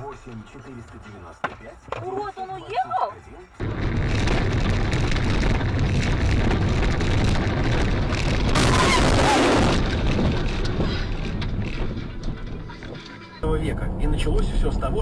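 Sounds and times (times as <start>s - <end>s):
moving car rumble: 3.4s - 15.0s.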